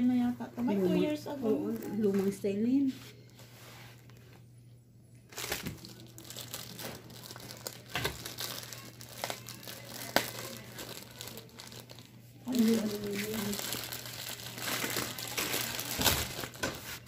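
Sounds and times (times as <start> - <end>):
plastic packaging crinkling: 5.3 - 17.0.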